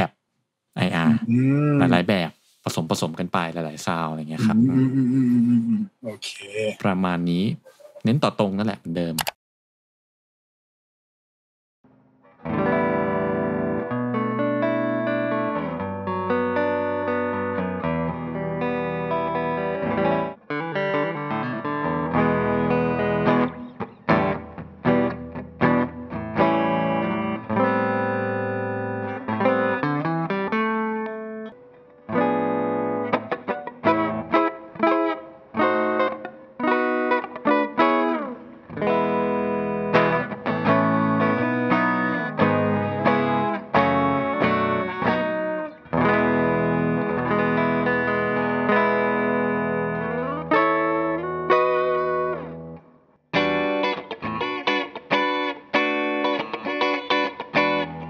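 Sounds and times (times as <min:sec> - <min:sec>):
clean electric guitar playing: 0:12.4 - 0:58.0.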